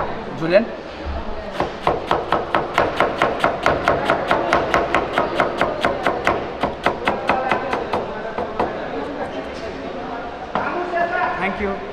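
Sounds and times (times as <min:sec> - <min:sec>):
knife chopping on plastic board: 0:01.6 - 0:09.6.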